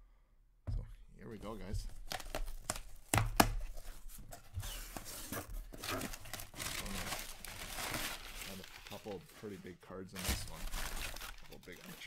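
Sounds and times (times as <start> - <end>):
packing paper rustling: 1.4 - 12.0
packing tape ripping: 5.8 - 9.2.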